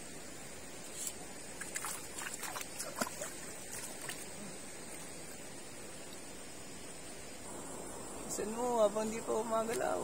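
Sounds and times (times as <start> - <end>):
night insects droning: 0.0 - 10.0
splashing in shallow water: 1.0 - 6.2.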